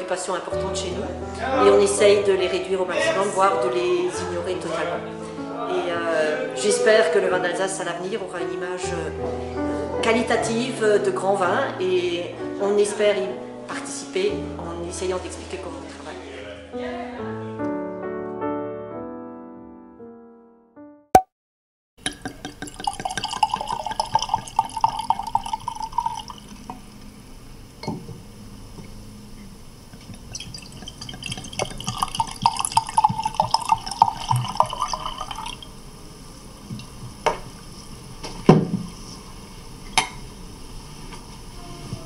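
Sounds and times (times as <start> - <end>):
liquid pouring into a glass: 22.0 - 27.1, 30.0 - 35.7
sharp drips or light knocks: 22.1 - 26.8, 29.9 - 35.6.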